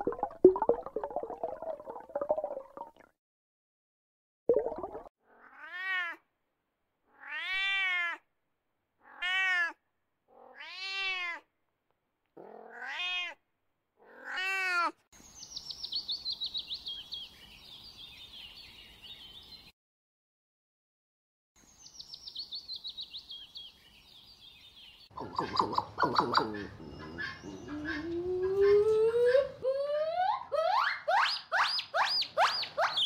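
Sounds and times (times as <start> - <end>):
cat meowing: 5.4 - 6.2, 7.1 - 8.2, 9.0 - 9.8, 10.4 - 11.5, 12.4 - 13.4, 14.0 - 15.0.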